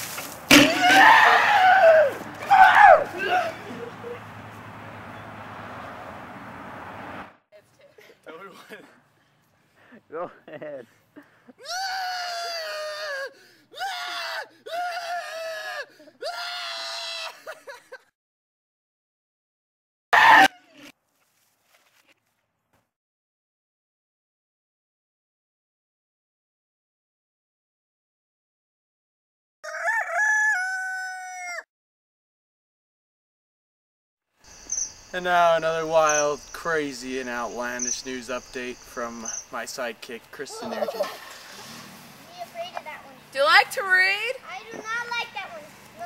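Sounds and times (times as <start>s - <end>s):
man screaming: 0.7s - 3.7s, 11.6s - 17.4s
rooster crowing: 29.6s - 31.7s.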